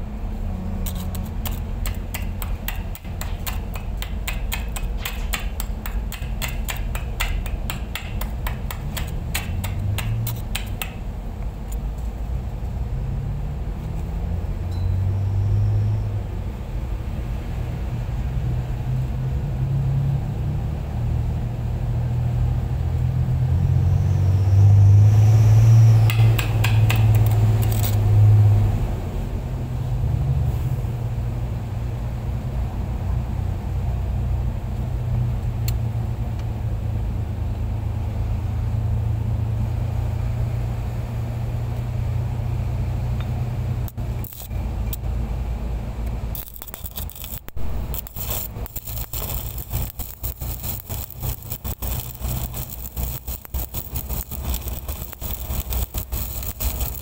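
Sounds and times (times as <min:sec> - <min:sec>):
low engine rumble: 0:00.0 - 0:57.0
welding crackle: 0:00.8 - 0:11.1, 0:26.0 - 0:28.1, 0:43.8 - 0:45.0, 0:46.3 - 0:57.0.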